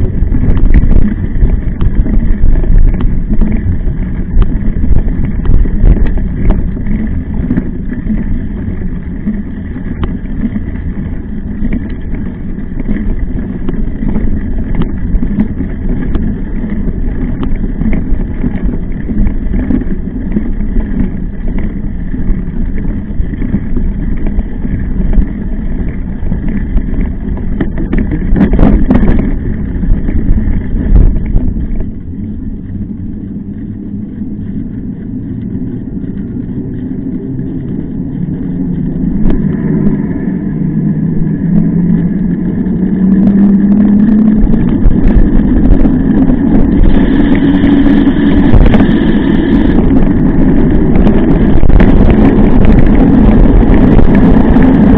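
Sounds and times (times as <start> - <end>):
bike rattles and knocks: 0.0 - 32.2
tyres rumbling over rough trail: 0.0 - 54.9
wind buffeting microphone: 0.0 - 54.9.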